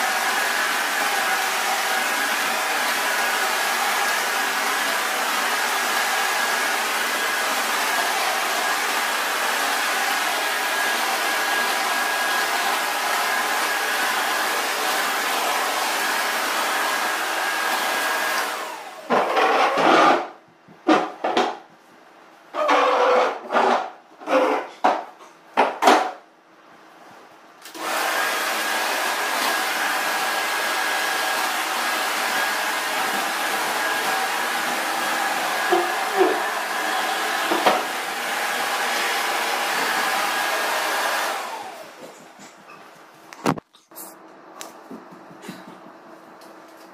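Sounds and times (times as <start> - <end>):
vacuum cleaner running: 0.0 - 20.3, 27.6 - 42.8.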